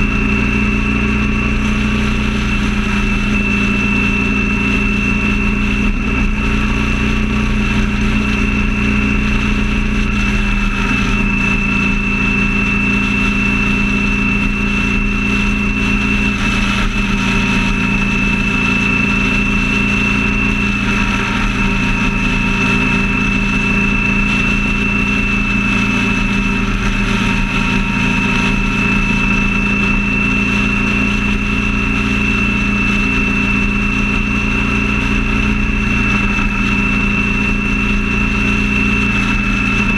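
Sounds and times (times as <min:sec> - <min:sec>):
thin high whine: 0:00.0 - 0:39.9
vehicle engine drone and road noise: 0:00.0 - 0:39.9.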